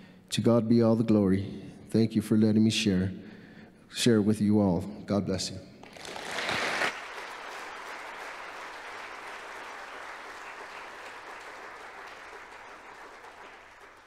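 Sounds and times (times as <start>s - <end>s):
congregation applauding: 5.8s - 14.0s.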